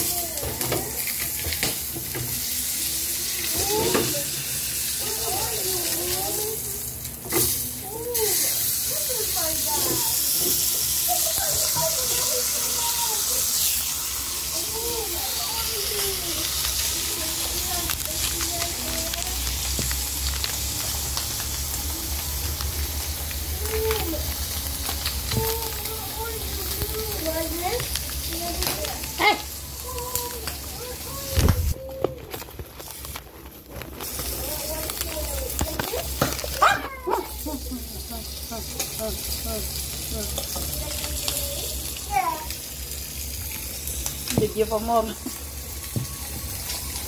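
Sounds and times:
meat sizzling in hot oil: 0:00.0 - 0:32.0, 0:32.6 - 0:47.0
sharp crackles: 0:11.1 - 0:37.6.

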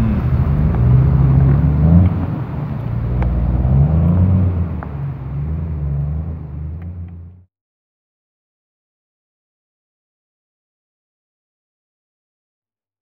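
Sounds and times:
low outdoor rumble: 0:00.0 - 0:07.5.

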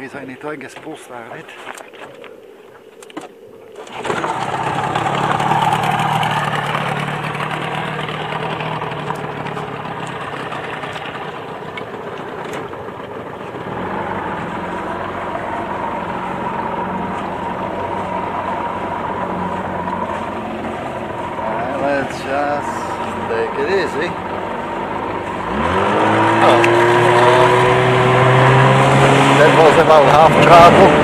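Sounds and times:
outboard motor pull-start: 0:03.7 - 0:15.2
outboard motor running and idling: 0:03.8 - 0:31.0.

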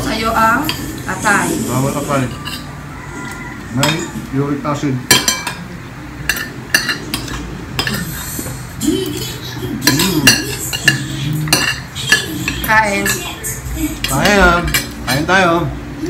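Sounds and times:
cutlery clinking on ceramic plates: 0:02.2 - 0:04.3, 0:05.1 - 0:08.2, 0:09.8 - 0:15.3.

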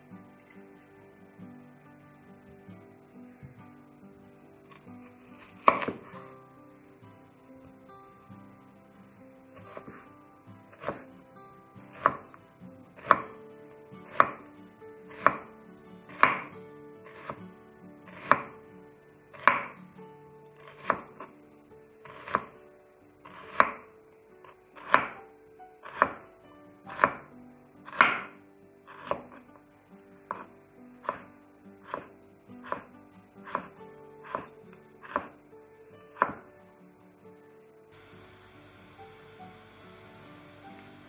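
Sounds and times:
knife chopping onion on board: 0:24.9 - 0:25.2, 0:31.9 - 0:32.1, 0:36.2 - 0:36.4.

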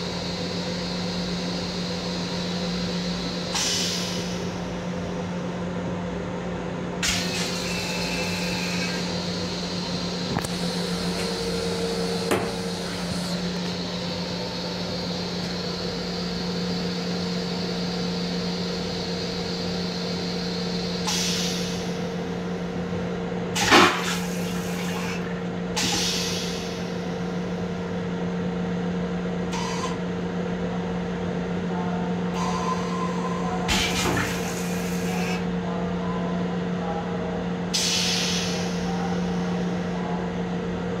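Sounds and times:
electric railcar hum and drone: 0:00.0 - 0:41.0
short air hisses: 0:37.8 - 0:38.7.

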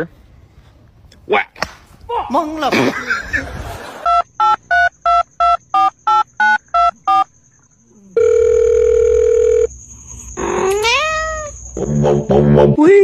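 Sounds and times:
long steady beep: 0:04.0 - 0:10.3
electronic keypad beeps: 0:04.1 - 0:07.3.

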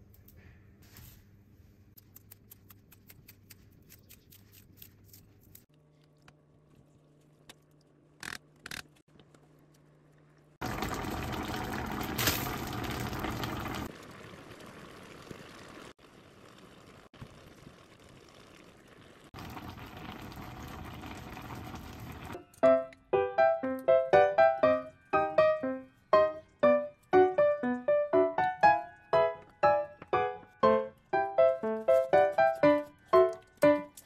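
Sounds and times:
broth boiling: 0:09.2 - 0:22.4.

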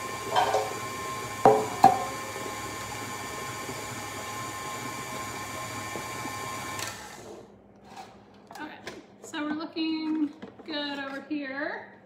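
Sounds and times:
stand mixer whining: 0:00.0 - 0:07.4
metal pan knocking on stone counter: 0:01.4 - 0:02.1.

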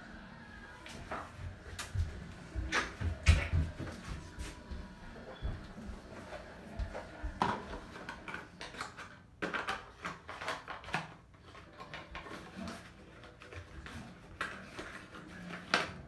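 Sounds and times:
clicks and rustles of handling: 0:05.6 - 0:16.0.

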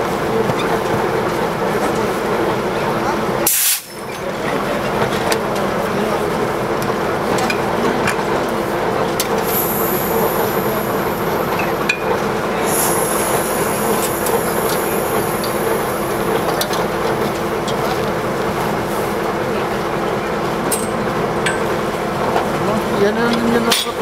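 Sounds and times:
diesel locomotive idling: 0:00.0 - 0:24.0.

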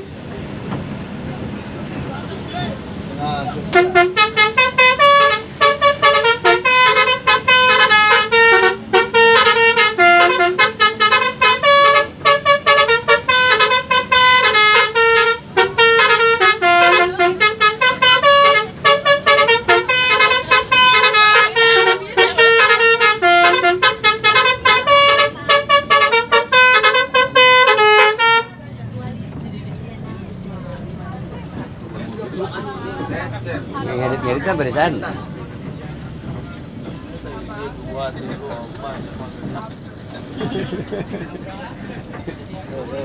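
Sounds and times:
bus multi-tone air horn tune: 0:03.4 - 0:28.6.

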